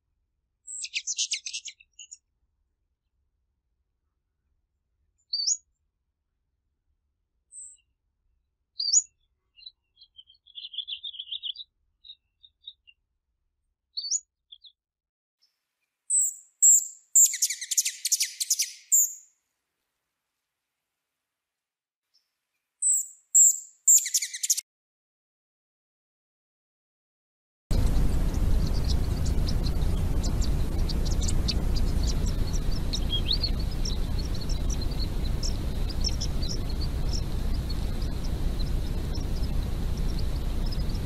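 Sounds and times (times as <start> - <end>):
hummingbird buzzy chattering: 27.7 - 41.0
hummingbird chips: 27.7 - 41.0.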